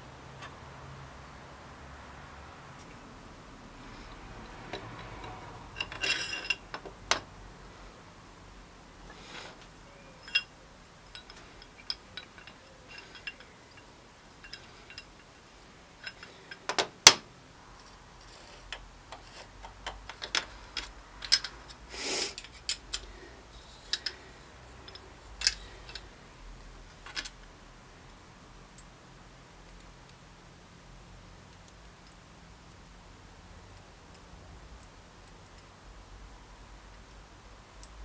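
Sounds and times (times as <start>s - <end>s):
metal parts clinking on workbench: 4.7s - 7.2s, 10.2s - 10.5s, 11.1s - 15.3s, 16.0s - 17.2s, 18.2s - 26.1s.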